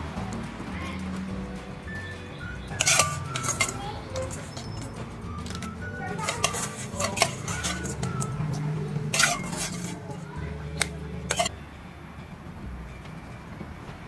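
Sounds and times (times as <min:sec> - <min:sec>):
metal bowl clinking on wooden mortar: 0:02.7 - 0:11.5.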